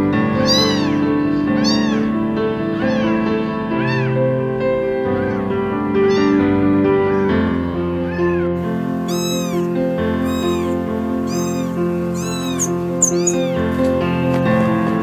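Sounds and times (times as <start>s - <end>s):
background music: 0.0s - 15.0s
kitten meowing: 0.3s - 14.0s.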